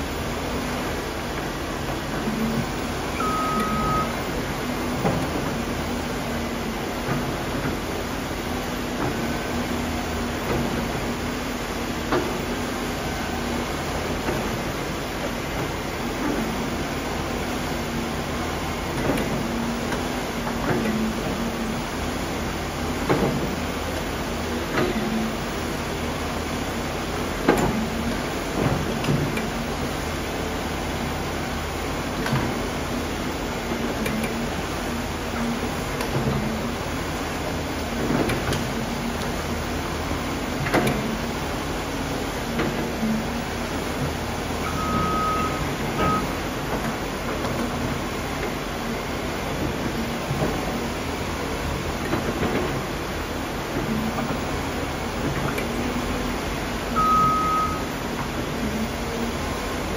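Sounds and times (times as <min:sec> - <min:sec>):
excavator engine and hydraulics: 0:00.0 - 0:59.9
thin high tone: 0:03.1 - 0:04.2, 0:57.0 - 0:57.9.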